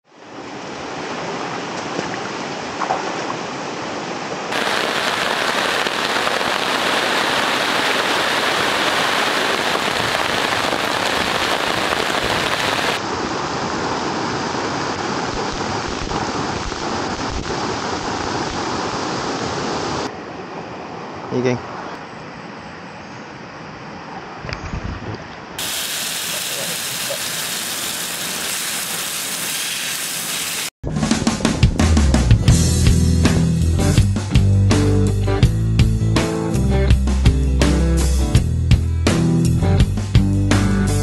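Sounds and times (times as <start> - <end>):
heavy rain: 3.5 - 20.1, 25.6 - 30.7.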